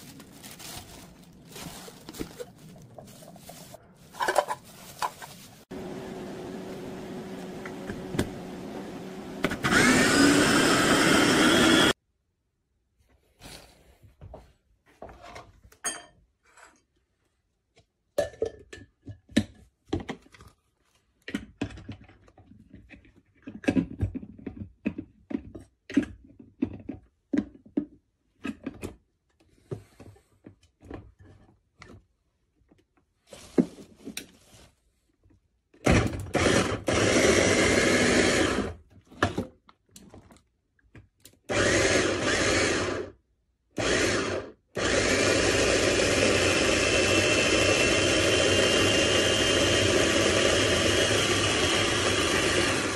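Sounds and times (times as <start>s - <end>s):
electric food chopper motor: 5.8s - 12.0s, 35.9s - 38.8s, 41.5s - 43.2s, 43.8s - 52.9s.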